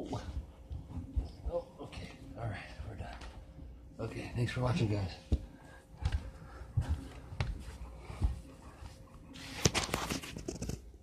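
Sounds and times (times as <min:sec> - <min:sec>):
camera rubbing and scraping: 0:09.3 - 0:11.0.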